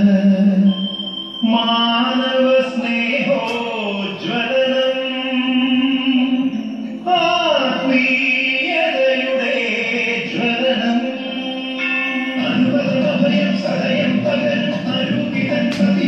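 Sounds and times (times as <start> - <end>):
melody of sliding held notes: 0.0 - 16.0.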